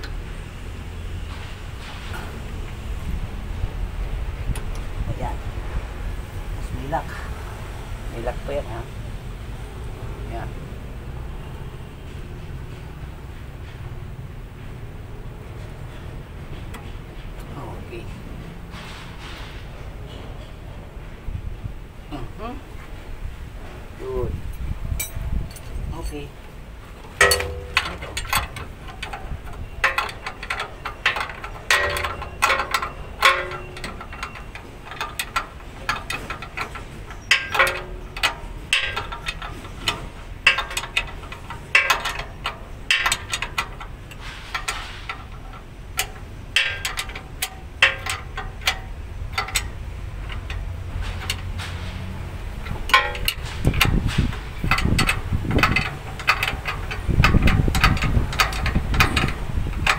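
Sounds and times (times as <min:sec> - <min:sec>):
metal tools clinking and tapping: 0:24.5 - 0:26.3, 0:27.0 - 0:59.9.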